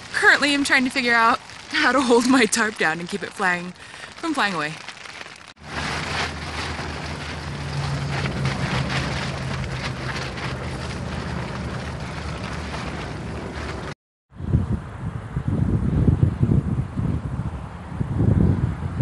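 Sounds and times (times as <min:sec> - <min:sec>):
tent fabric flapping: 0:00.0 - 0:14.0
wind gusting on microphone: 0:00.0 - 0:19.0.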